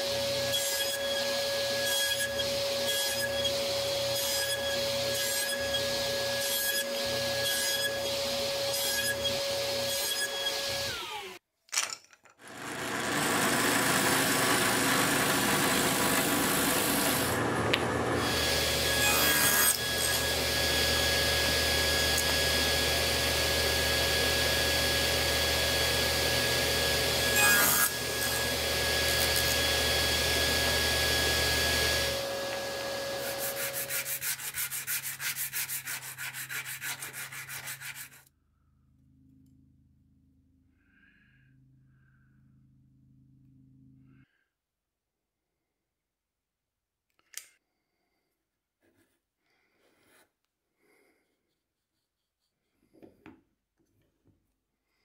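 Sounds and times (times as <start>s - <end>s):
table saw cutting wood: 0.0s - 11.4s, 12.4s - 38.3s
hand sanding wood: 32.6s - 38.3s.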